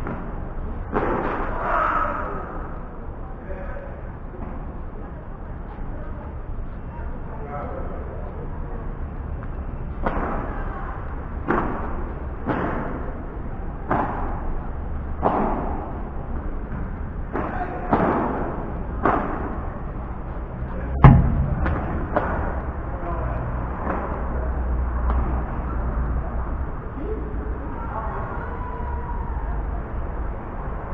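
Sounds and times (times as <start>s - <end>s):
rackets striking ball: 15.2s - 19.9s, 20.9s - 22.9s
loud impact thud: 20.9s - 22.6s.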